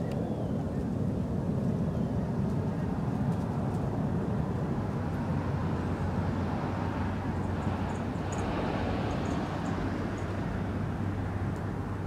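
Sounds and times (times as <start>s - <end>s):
distant road traffic rumble: 0.0s - 12.0s.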